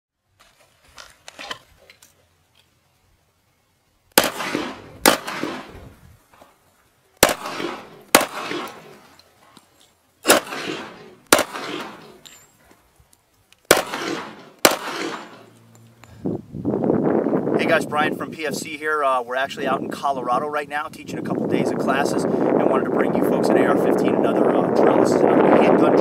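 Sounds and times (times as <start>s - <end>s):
handgun shots with echo: 4.2s - 5.8s, 7.2s - 9.0s, 10.2s - 12.3s, 13.7s - 15.5s.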